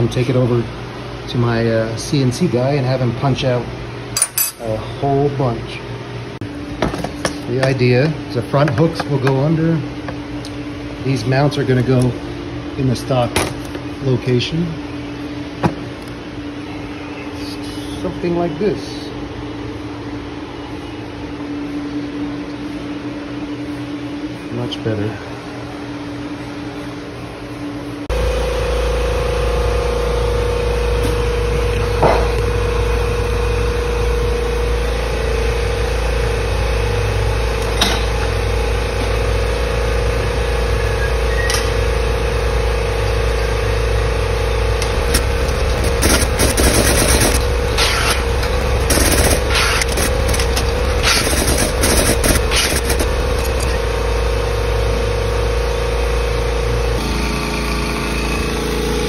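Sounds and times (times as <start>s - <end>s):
hydraulic pump humming: 28.1s - 59.0s.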